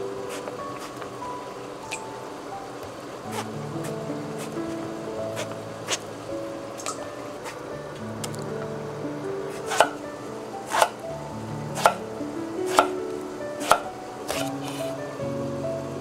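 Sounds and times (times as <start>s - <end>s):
knife chopping on wooden board: 11.8s - 12.0s.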